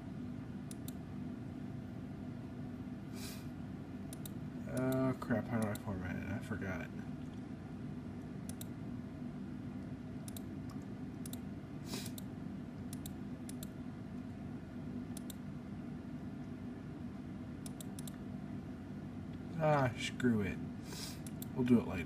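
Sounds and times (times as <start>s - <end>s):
computer mouse clicking: 0.6s - 1.0s, 4.1s - 5.9s, 8.4s - 8.8s, 10.2s - 13.8s, 15.1s - 15.4s, 17.6s - 18.2s, 21.2s - 21.6s.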